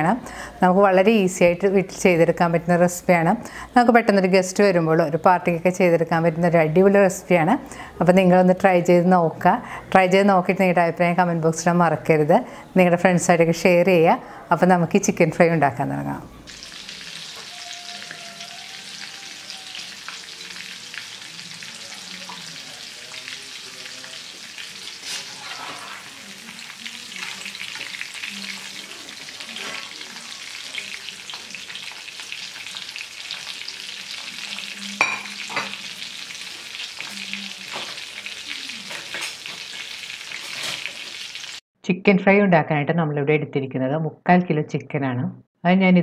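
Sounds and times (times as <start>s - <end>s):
chicken deep-frying in oil: 16.5s - 41.6s.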